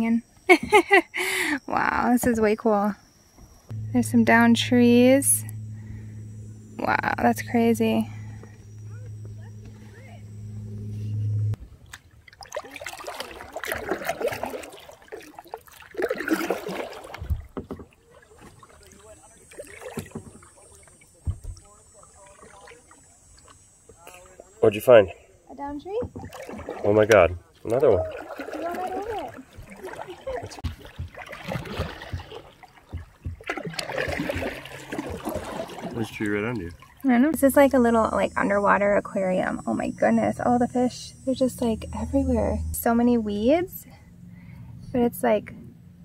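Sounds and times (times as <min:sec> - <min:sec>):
soft low bumps: 0:03.7 - 0:11.6, 0:29.0 - 0:35.6
paddle splashing in water: 0:11.7 - 0:24.5, 0:26.0 - 0:37.0.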